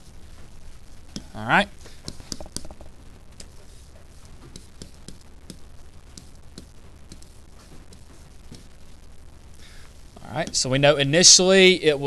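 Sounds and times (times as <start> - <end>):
low steady hum: 0.0 - 12.0
stylus tapping tablet screen: 1.1 - 9.0.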